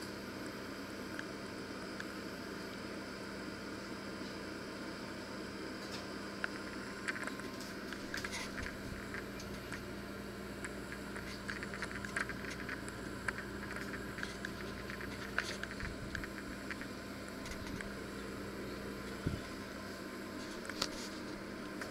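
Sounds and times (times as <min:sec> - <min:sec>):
electric oven humming: 0:00.0 - 0:21.9
faint clicks and crackles: 0:05.8 - 0:21.9.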